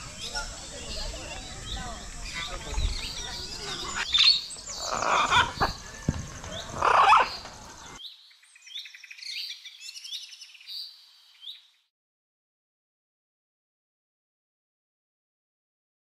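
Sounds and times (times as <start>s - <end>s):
small birds chirping: 0.0s - 11.9s.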